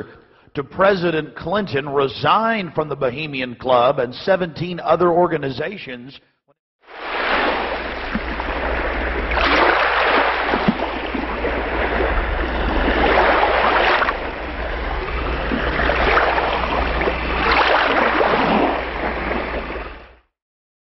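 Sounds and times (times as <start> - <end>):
rushing noise: 6.9 - 20.0
low steady hum: 7.7 - 20.2.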